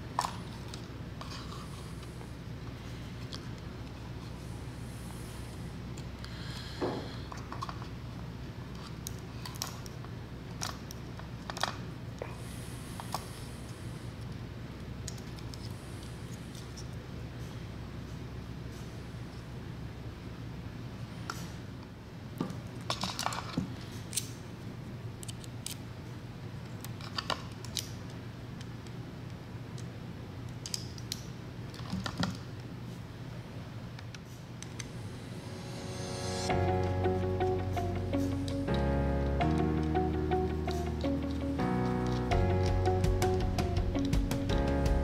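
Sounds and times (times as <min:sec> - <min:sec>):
steady low hum: 0:00.0 - 0:22.7, 0:32.5 - 0:45.0
small parts clicking and tapping: 0:08.7 - 0:11.8, 0:15.0 - 0:16.9, 0:25.2 - 0:25.8, 0:26.8 - 0:28.9, 0:30.5 - 0:32.5
low hum: 0:34.8 - 0:45.0.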